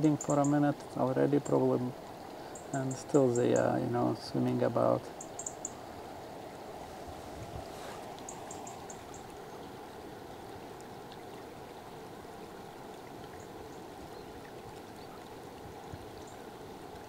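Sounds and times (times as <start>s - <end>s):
river water rushing: 0.0s - 17.0s
faint ticks: 8.1s - 9.4s.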